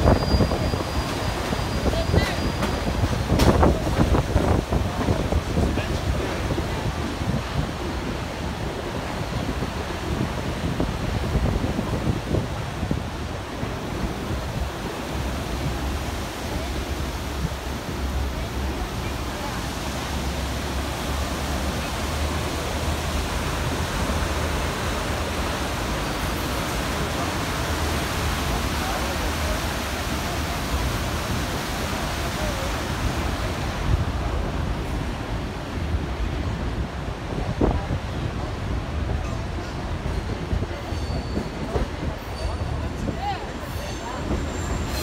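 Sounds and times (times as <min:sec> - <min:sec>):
wind buffeting microphone: 0:00.0 - 0:18.0
river rapids rushing: 0:00.0 - 0:45.0
train rumble: 0:00.0 - 0:45.0.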